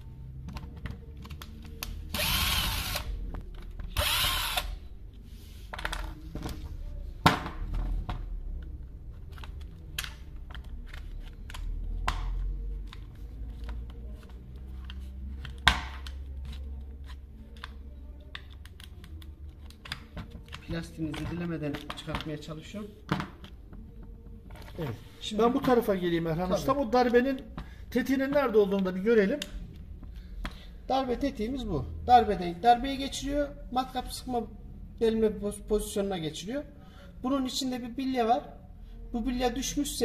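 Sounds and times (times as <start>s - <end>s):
cordless drill-driver running: 2.1s - 3.1s, 4.0s - 4.8s.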